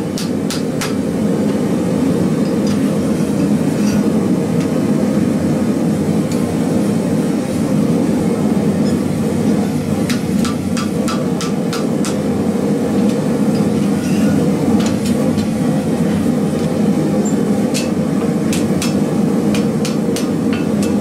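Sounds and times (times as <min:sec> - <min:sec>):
hammer striking hot steel on anvil: 0:00.0 - 0:01.6, 0:10.0 - 0:12.3, 0:16.6 - 0:21.0.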